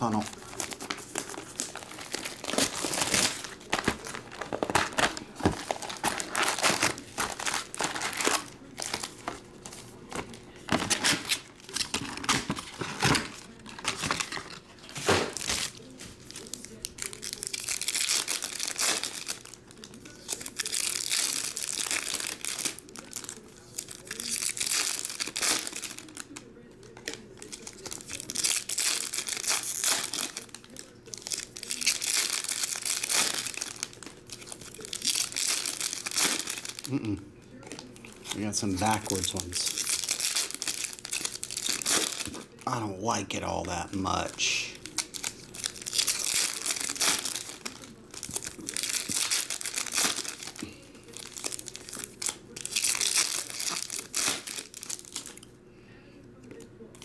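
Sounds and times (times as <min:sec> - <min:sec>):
foil wrappers crinkling and tearing: 0:00.0 - 0:55.6.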